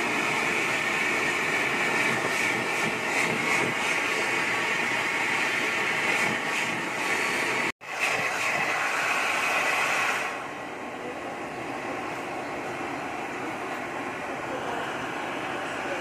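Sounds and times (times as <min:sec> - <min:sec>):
gas torch flame hissing: 0:00.0 - 0:10.5.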